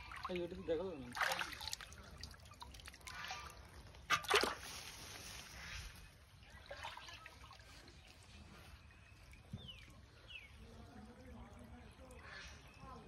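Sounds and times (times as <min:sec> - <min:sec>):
sharp water splashes: 0:00.0 - 0:05.6, 0:06.4 - 0:08.1
muddy water sloshing: 0:00.0 - 0:13.0.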